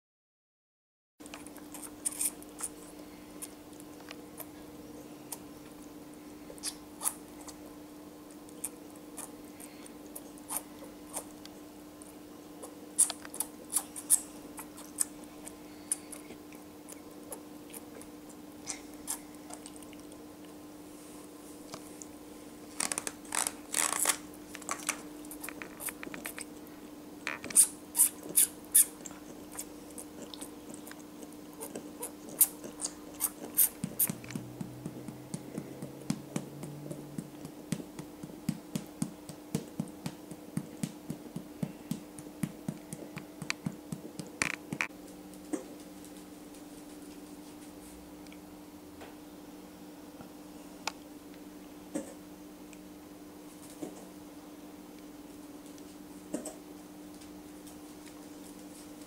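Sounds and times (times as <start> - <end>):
baby animal suckling from syringe: 1.3 - 4.5, 12.6 - 18.1, 27.3 - 37.5.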